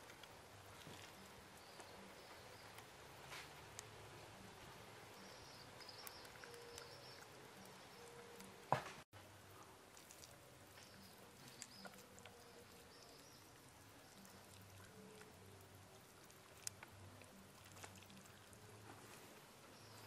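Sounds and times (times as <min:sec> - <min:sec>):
faint high chirping: 0:05.0 - 0:08.6
wet squishing of hands rubbing meat: 0:09.8 - 0:12.9, 0:16.0 - 0:18.6.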